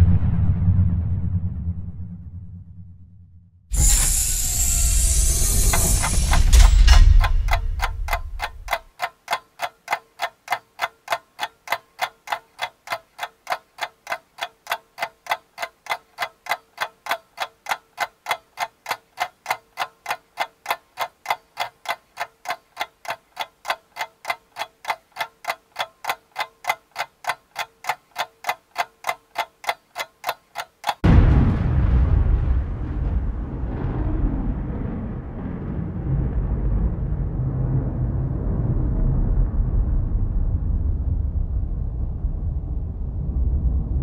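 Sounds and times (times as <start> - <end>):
clock-like ticking: 3.8 - 31.2.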